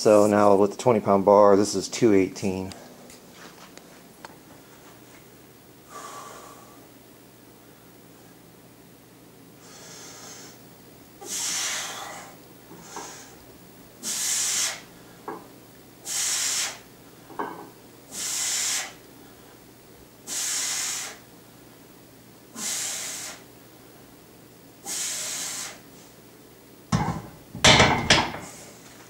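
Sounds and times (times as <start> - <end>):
man breathing forcefully: 5.9 - 6.8, 9.6 - 10.6, 11.2 - 13.4, 14.0 - 15.2, 16.0 - 16.8, 18.1 - 19.5, 20.3 - 21.2, 22.6 - 23.5, 24.8 - 25.8.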